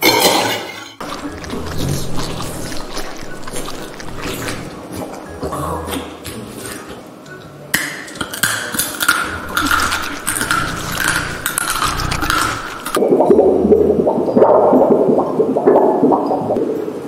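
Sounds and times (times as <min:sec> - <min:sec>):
dog crunching kibble in plastic bowl: 0:01.0 - 0:05.3, 0:08.2 - 0:13.0.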